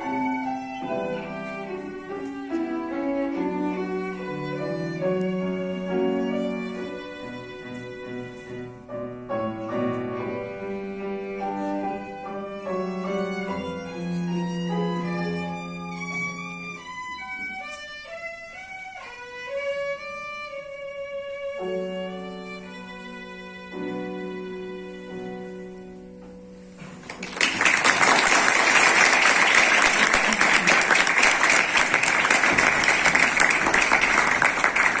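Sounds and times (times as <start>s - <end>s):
violin playing: 0.0s - 26.5s
loud applause: 27.0s - 35.0s.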